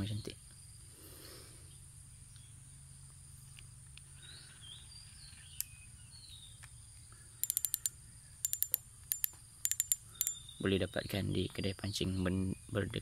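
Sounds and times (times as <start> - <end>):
faint chirps: 0.0 - 13.0
low steady background noise: 0.0 - 13.0
fishing reel clicking: 7.4 - 10.4.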